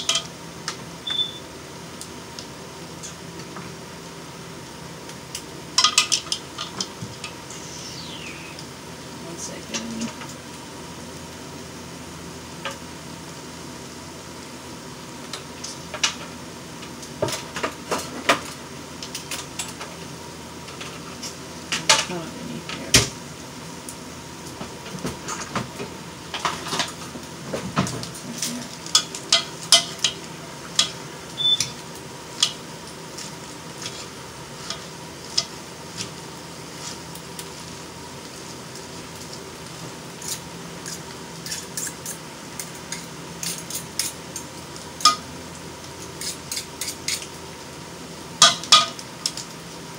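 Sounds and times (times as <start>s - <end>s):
low background hum: 0.0s - 49.9s
fork scraping a bowl: 33.8s - 34.8s, 46.2s - 47.3s.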